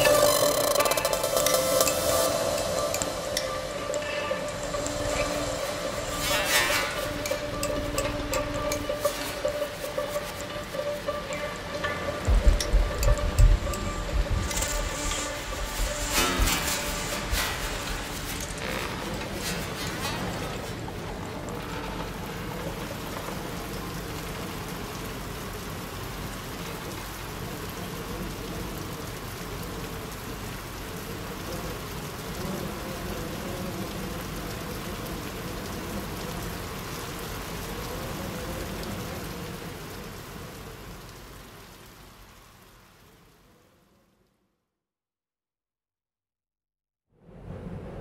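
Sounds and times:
low wavering drone: 0.0 - 18.7
ambient electronic music: 0.0 - 24.7
dense hiss of noise: 0.0 - 44.4, 47.2 - 48.0.

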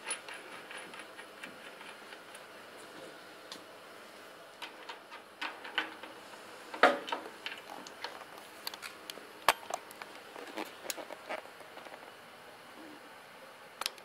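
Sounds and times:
metal parts clicking and clinking: 0.0 - 2.4.

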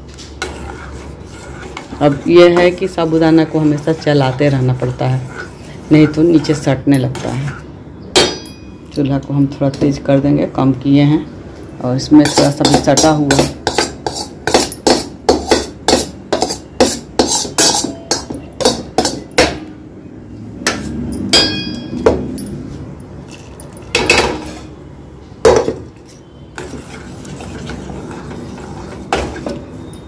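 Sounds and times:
metal spoon knocking on steel bowl: 17.5 - 19.6, 21.4 - 22.4.

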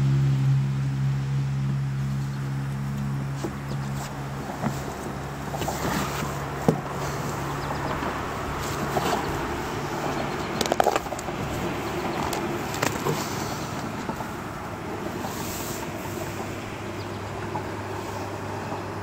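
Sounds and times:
outdoor background noise: 0.0 - 19.0
sharp knocks and clicks: 10.5 - 13.2.

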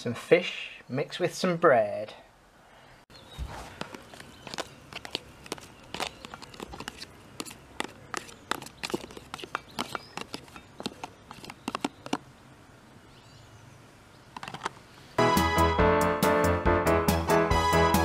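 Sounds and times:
fork scraping plastic tub: 3.4 - 12.2.

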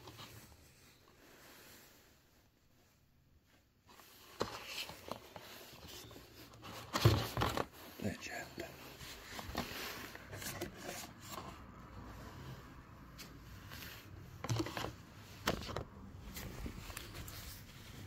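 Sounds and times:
card pages rustling and sliding: 3.9 - 18.0.

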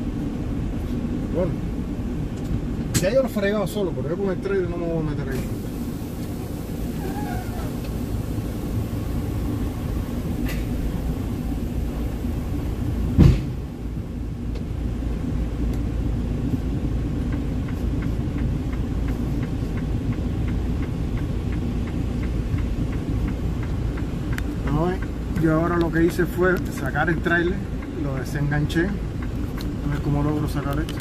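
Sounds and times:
diesel truck idling: 5.4 - 31.0
loud thump: 13.1 - 13.6.

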